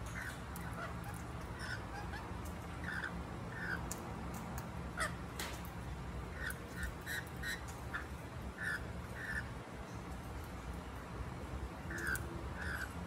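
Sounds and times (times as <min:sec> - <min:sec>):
parrots squawking: 0:00.0 - 0:04.0, 0:04.9 - 0:05.2, 0:06.3 - 0:09.6, 0:11.9 - 0:13.0.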